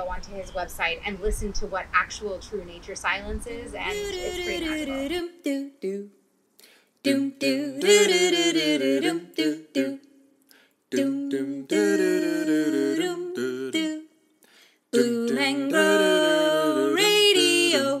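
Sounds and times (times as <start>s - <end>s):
person humming a tune: 3.8s - 6.1s.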